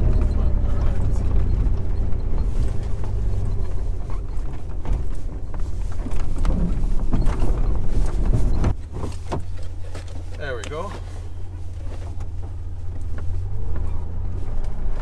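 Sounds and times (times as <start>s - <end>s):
knocks and rattles: 0.0s - 10.4s
engine low rumble: 0.0s - 15.0s.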